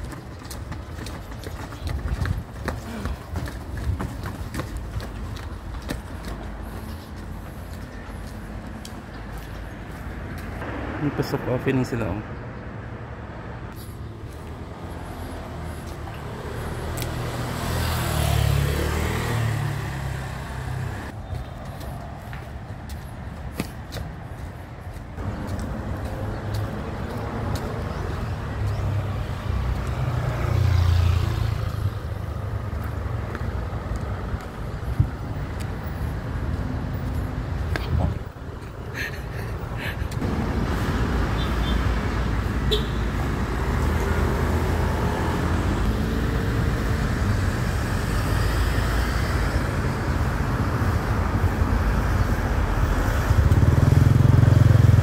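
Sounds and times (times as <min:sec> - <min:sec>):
cars passing on road: 0:00.0 - 0:55.0.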